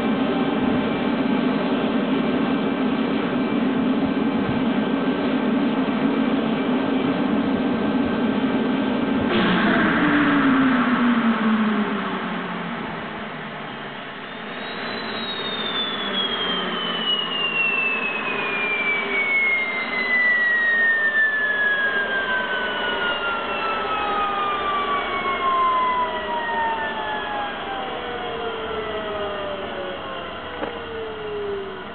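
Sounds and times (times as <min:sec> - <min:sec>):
gas turbine whine winding down: 0:00.0 - 0:31.9
rushing noise: 0:07.6 - 0:31.9.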